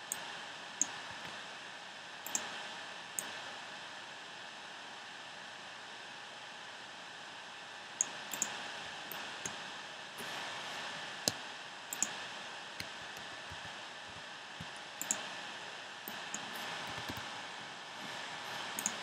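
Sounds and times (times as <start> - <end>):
steady background hiss: 0.0 - 19.0
computer mouse clicks: 2.2 - 2.5, 8.0 - 9.6, 11.2 - 12.2, 12.8 - 15.3, 16.1 - 17.3, 18.8 - 19.0.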